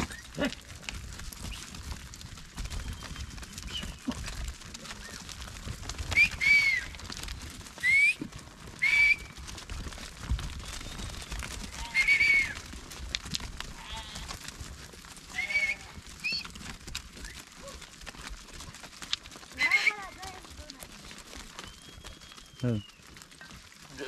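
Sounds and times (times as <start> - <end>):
hooves clicking on rock: 0.0 - 24.0
high whistle-like sheep calls: 6.1 - 6.9, 8.8 - 9.3, 11.0 - 12.6, 15.3 - 16.4.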